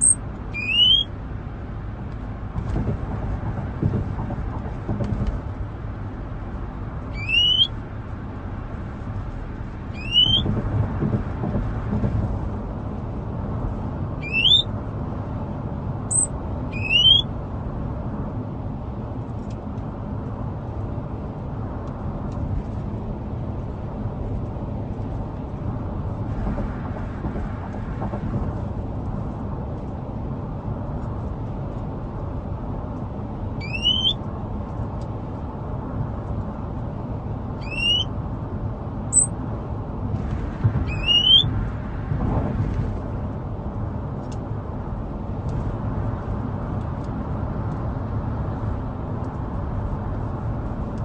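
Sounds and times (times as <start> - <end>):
songbird whistling: 0.0 - 1.1, 7.1 - 7.7, 10.0 - 10.5, 14.2 - 14.7, 16.1 - 17.3, 33.6 - 34.2, 37.6 - 38.1, 39.1 - 39.3, 40.9 - 41.5
car cabin rumble: 0.0 - 14.9, 22.2 - 33.2.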